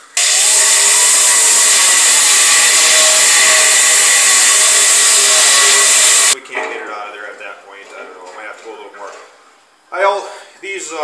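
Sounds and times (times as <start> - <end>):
air grinder cutting steel: 0.0 - 6.4.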